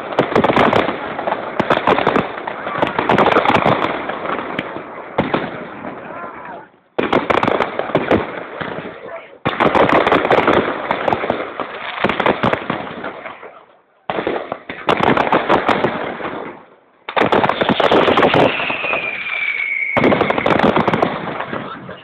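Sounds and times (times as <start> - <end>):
fireworks cracks and bangs: 0.0 - 22.0
high firework whistle: 17.6 - 20.8.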